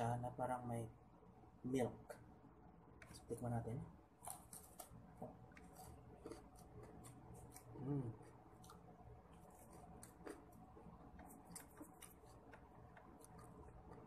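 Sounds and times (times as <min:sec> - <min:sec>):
crunching and chewing: 0:04.1 - 0:14.0
closed-mouth hum: 0:04.3 - 0:14.0.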